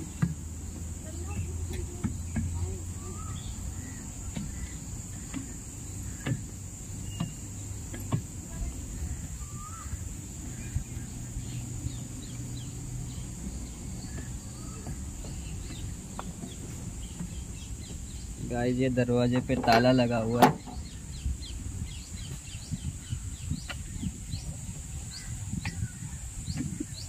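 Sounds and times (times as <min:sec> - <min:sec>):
footsteps on wooden stairs: 0:00.0 - 0:10.8, 0:11.4 - 0:18.4
short bird calls: 0:02.6 - 0:07.6, 0:08.9 - 0:18.4.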